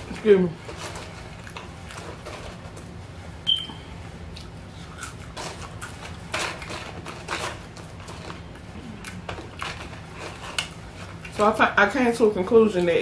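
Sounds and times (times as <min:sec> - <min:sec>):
person chewing french fries: 0:00.0 - 0:03.0, 0:04.2 - 0:11.4
steady low hum: 0:00.0 - 0:13.0.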